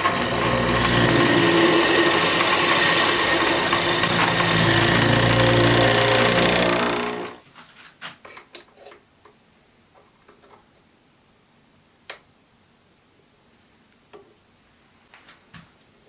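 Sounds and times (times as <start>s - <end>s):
metal lathe humming and whining: 0.0s - 7.4s.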